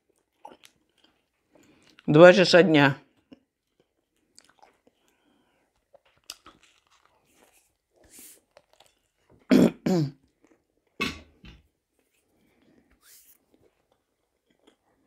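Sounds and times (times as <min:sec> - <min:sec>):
chewing and biting: 0:00.0 - 0:02.1, 0:03.1 - 0:09.5, 0:13.4 - 0:15.0.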